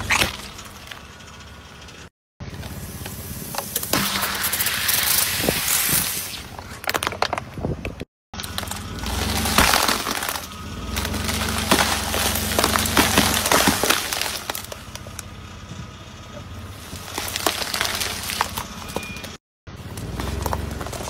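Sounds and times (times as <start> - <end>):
car engine hum: 0.0 - 4.8, 8.4 - 21.0
tyres crushing brittle objects: 8.4 - 15.3, 16.7 - 21.0.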